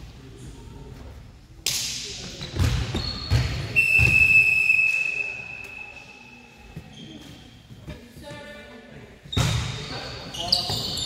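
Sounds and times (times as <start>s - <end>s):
referee whistle blast: 3.8s - 5.8s.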